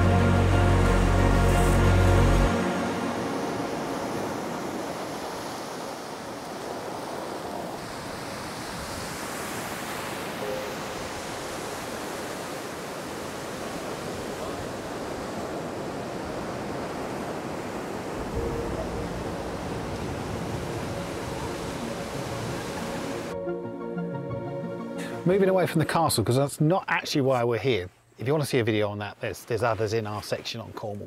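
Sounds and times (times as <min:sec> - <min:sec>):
waves breaking on a pebble beach: 0:02.7 - 0:18.5.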